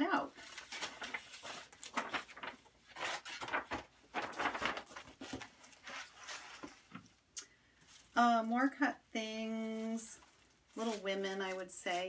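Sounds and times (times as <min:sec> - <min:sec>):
paper rustling and sliding: 0:00.4 - 0:07.0.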